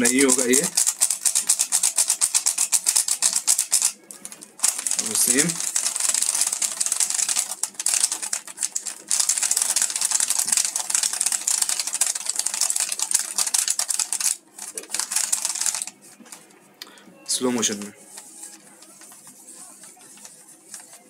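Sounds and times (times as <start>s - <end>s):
puzzle cube clicking: 0.0s - 4.0s, 4.6s - 15.9s.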